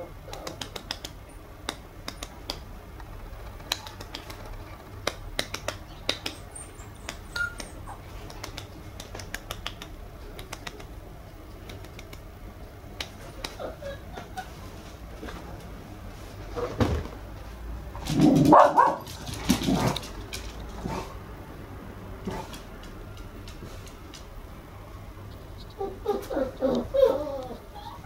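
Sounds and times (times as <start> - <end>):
sharp clicks and taps: 0.3 - 12.3
puppy whimpering: 6.3 - 8.1, 13.3 - 14.7, 25.6 - 28.0.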